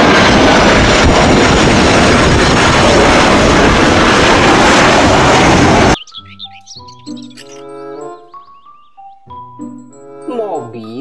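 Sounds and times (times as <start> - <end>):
jet engines roaring: 0.0 - 6.1.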